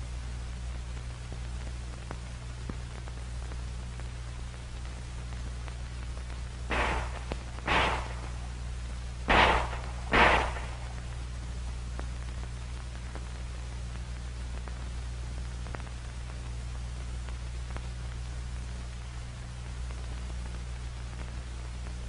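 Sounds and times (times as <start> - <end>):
film soundtrack hum and hiss: 0.0 - 22.0
handgun shots: 6.7 - 8.4, 9.3 - 11.0.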